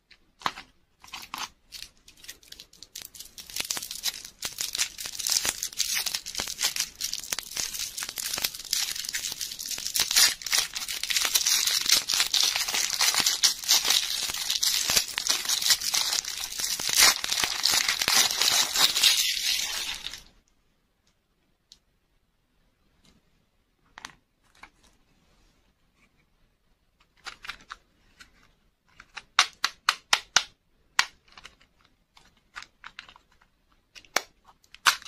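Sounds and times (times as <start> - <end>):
plastic wrapper crinkling: 0.4 - 20.4.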